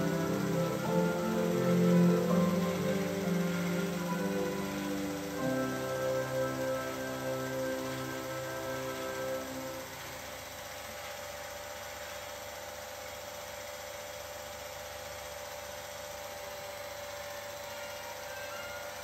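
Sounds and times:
background music: 0.0 - 10.4
held tones: 0.0 - 10.4
film projector motor whirring: 0.0 - 19.0.

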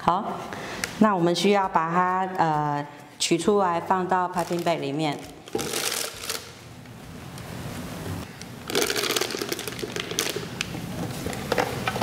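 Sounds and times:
plastic bag rustling: 4.4 - 6.6, 8.7 - 11.6.

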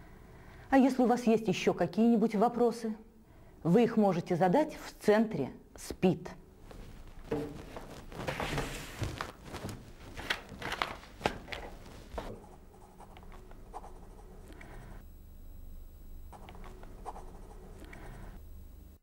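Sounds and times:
paper rustling: 6.7 - 12.5
pen scratching on paper: 11.7 - 14.8, 16.4 - 17.9
low hum: 11.8 - 19.0.

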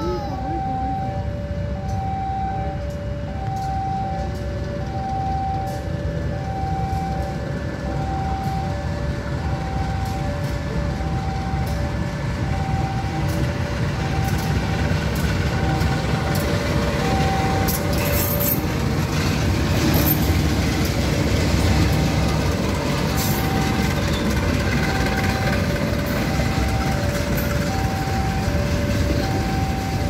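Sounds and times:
diesel locomotive rumble: 0.0 - 30.0
two-tone level-crossing alarm: 0.0 - 30.0
train wheels clacking over rail joints: 9.8 - 30.0.

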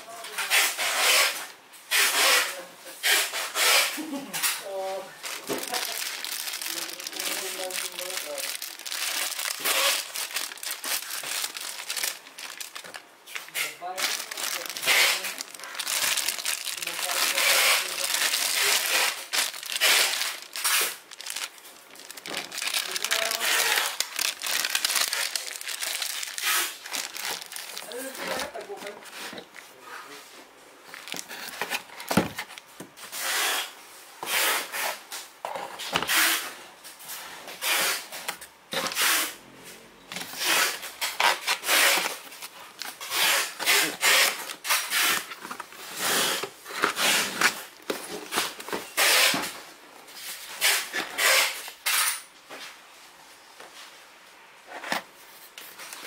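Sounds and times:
packaging rustling and scraping: 0.2 - 39.4, 40.1 - 52.8, 54.6 - 56.0.

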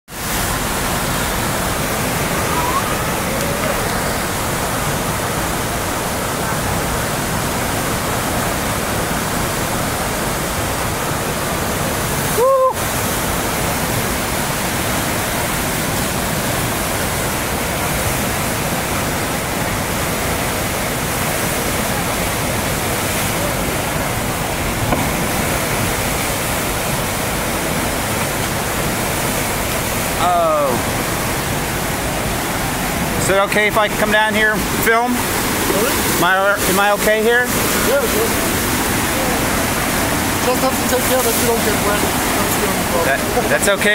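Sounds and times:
rushing whitewater: 0.1 - 43.9
short pitched sound: 2.1 - 4.1.

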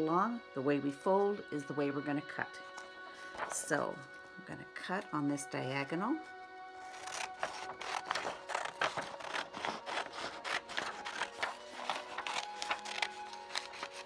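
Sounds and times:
scissors cutting paper: 6.8 - 14.0.

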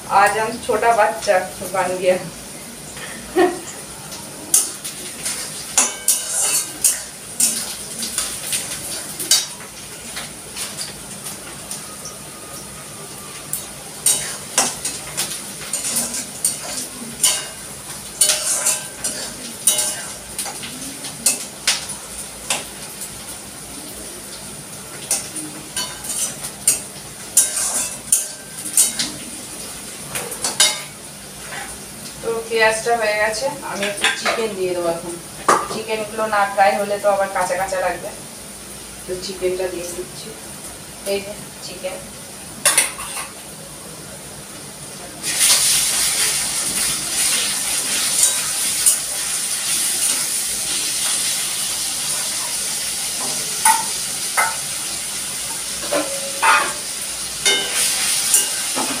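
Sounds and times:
onions sizzling in oil: 0.0 - 59.0
metal spatula scraping a pan: 4.5 - 8.4, 14.0 - 20.6, 25.1 - 29.1.

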